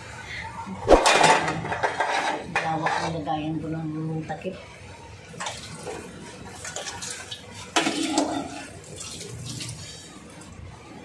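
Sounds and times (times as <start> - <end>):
tap water running into sink: 5.4 - 10.5
metal pot lid clanking: 7.8 - 8.7.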